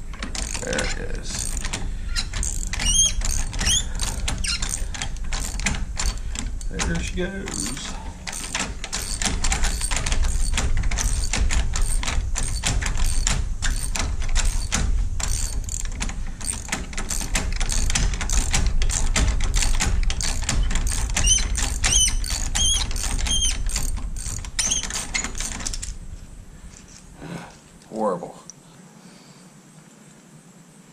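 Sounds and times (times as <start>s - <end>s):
hand ratchet clicking: 0.1s - 26.0s
short high squeaks: 0.4s - 6.7s, 16.5s - 25.9s.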